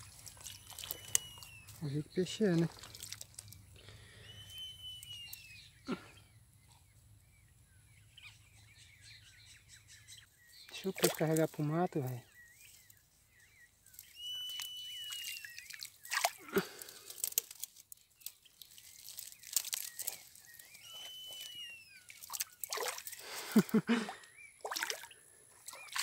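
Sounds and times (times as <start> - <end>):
water sloshing and splashing: 0.0 - 1.8, 2.4 - 3.6, 10.8 - 11.6, 14.5 - 20.4, 22.1 - 26.0
knocks and crunching through brush: 0.0 - 3.6, 13.9 - 21.6
bird whistling call: 0.8 - 1.8, 4.2 - 5.8, 14.0 - 15.8, 20.6 - 22.2.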